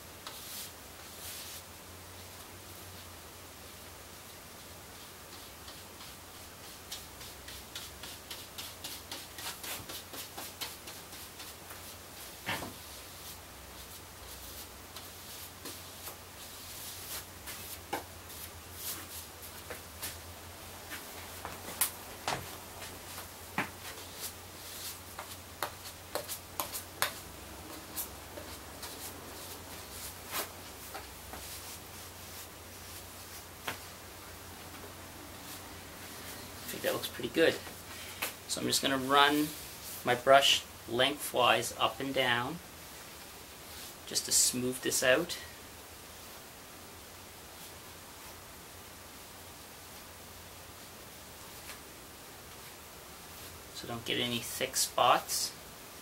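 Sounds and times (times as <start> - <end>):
low steady hum: 0.0 - 44.1
brush strokes clicking and tapping: 5.0 - 20.2, 20.8 - 33.9
brush bristles ticking: 5.2 - 20.2, 20.8 - 33.9.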